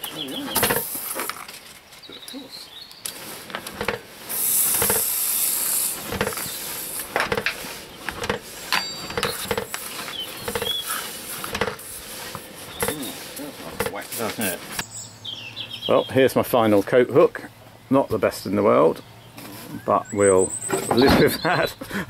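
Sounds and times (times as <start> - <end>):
tools knocking and scraping metal: 3.5 - 4.1, 4.8 - 5.1, 6.1 - 13.1, 13.7 - 14.0
hot metal hissing in wax: 4.1 - 14.8.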